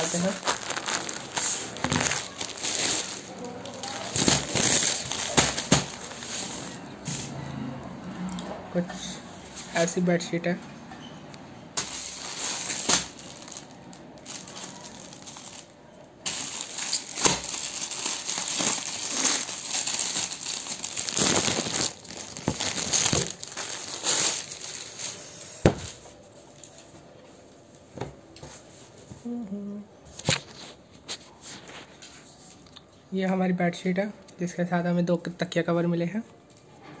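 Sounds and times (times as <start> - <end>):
plastic packaging crinkling: 0.0 - 6.9, 11.8 - 26.9.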